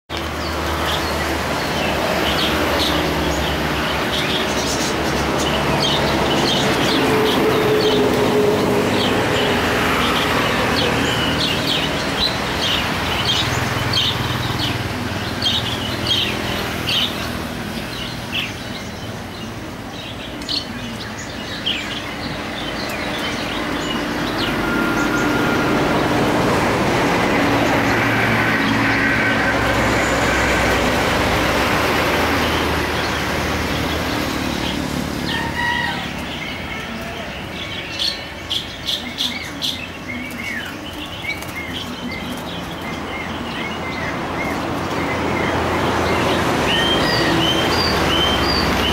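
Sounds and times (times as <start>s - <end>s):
small birds chirping: 0.1s - 26.3s, 27.2s - 48.9s
rushing background noise: 0.1s - 48.9s.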